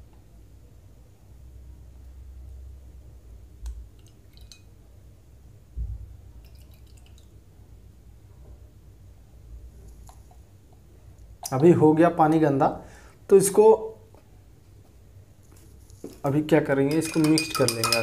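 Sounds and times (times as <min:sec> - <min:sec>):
liquid dripping into water: 0:03.7 - 0:04.7, 0:06.4 - 0:07.4.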